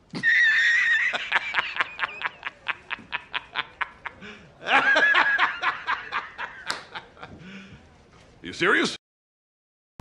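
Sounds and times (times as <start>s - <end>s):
man laughing hard: 0.2s - 7.4s.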